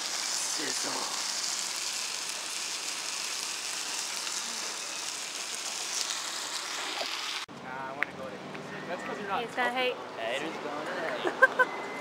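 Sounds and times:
noodles sizzling on hot platter: 0.0s - 7.5s.

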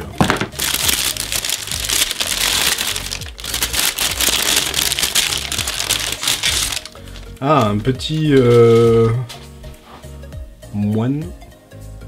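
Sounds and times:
tissue paper crinkling: 0.0s - 7.2s
soft background music: 0.0s - 12.0s.

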